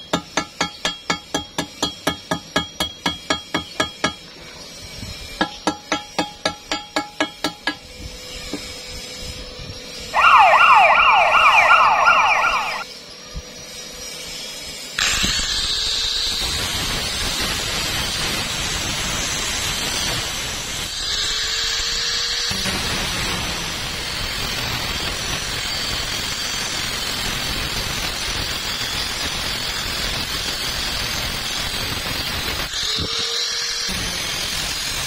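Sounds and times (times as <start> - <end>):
warbling high tone: 10.2 - 12.8
angle grinder cutting metal: 19.4 - 35.0.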